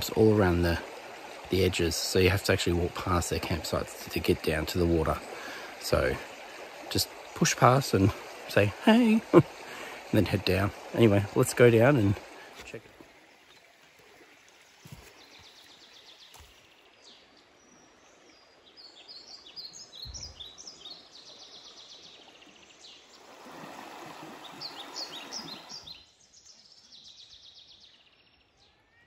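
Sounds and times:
flowing river water: 0.0s - 27.2s
birds chirping and trilling: 0.0s - 29.0s
footsteps on dirt: 14.5s - 16.7s.

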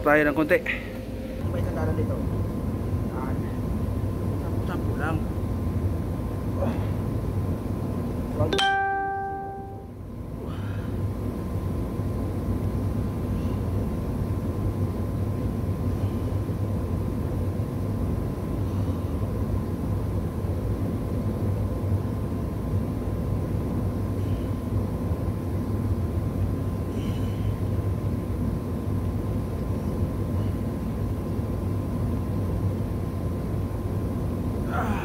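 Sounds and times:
faint steady hum: 0.0s - 35.0s
short pitched ding: 8.6s - 9.9s.

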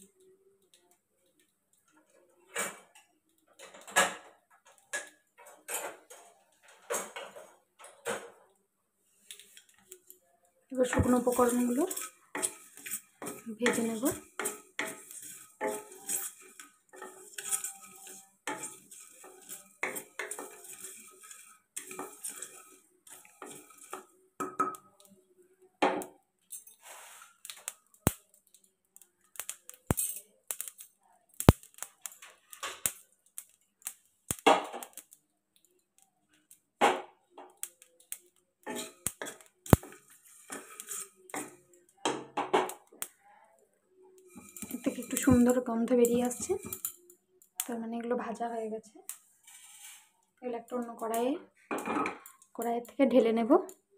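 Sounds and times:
wooden spatula scraping spices: 10.7s - 24.2s, 26.5s - 27.7s, 38.0s - 41.7s, 44.2s - 47.0s, 49.1s - 51.2s.

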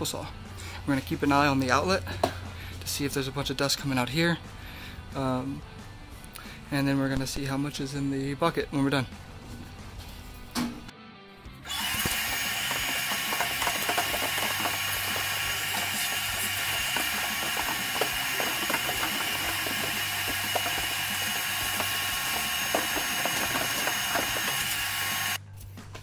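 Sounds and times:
shop vacuum motor whine: 11.6s - 25.4s
debris rattling in vacuum hose: 11.8s - 25.4s.

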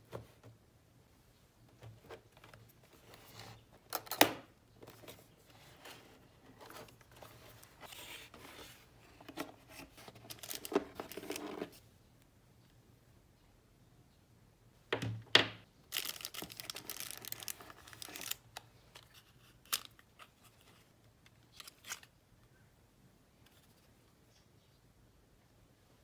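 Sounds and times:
packaging rustling: 4.8s - 11.7s, 15.9s - 20.0s.

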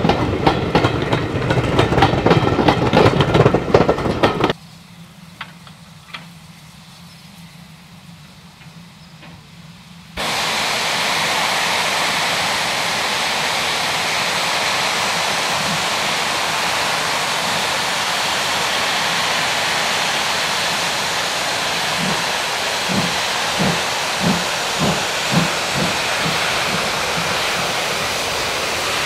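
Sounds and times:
steam locomotive hissing: 0.0s - 29.0s
steam exhaust chuffs: 9.5s - 29.0s.

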